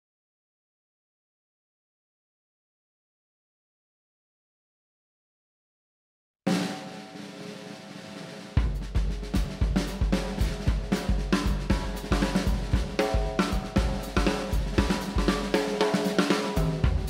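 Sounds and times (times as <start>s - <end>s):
drum kit driving beat: 6.5s - 17.0s.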